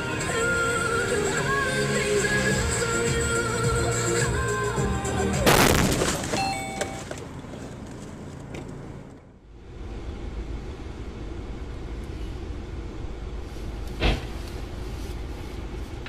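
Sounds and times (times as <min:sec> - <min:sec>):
road and engine rumble: 0:00.0 - 0:16.0
traffic rumble: 0:00.0 - 0:16.0
car crash with crumpling metal: 0:05.4 - 0:07.3
flying debris: 0:05.5 - 0:06.4.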